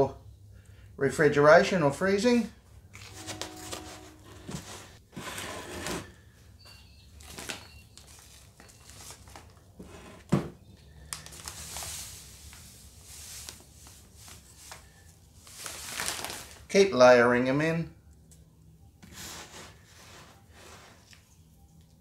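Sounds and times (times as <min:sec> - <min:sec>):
hand scooping rustling salt: 0:11.4 - 0:14.9.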